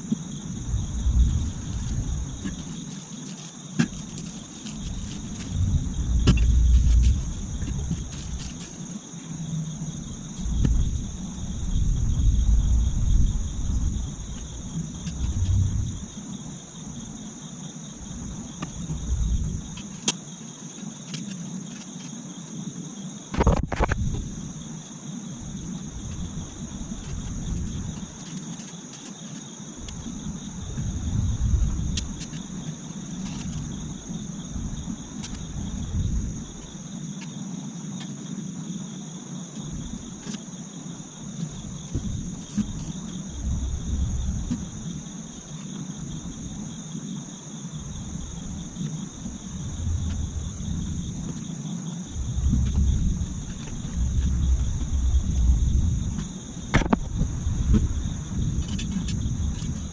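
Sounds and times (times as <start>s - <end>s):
insects chirring: 0.0s - 59.9s
low rumble: 0.5s - 2.6s, 5.2s - 8.4s, 10.3s - 16.2s, 49.3s - 51.3s, 52.1s - 56.2s.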